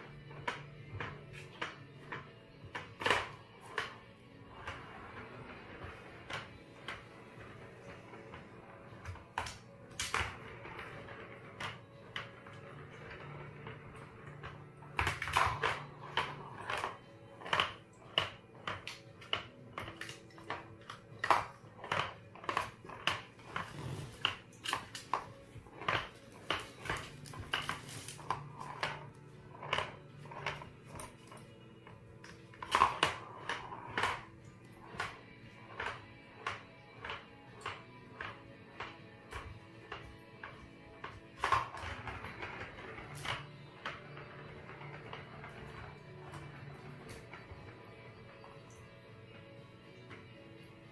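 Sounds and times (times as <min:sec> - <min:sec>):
faint music: 0:00.0 - 0:50.9
plastic ball rolling in toy track: 0:00.0 - 0:50.9.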